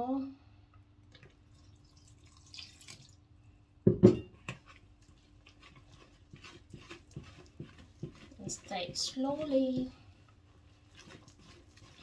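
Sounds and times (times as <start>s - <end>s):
water pouring into bowl: 1.1s - 3.2s.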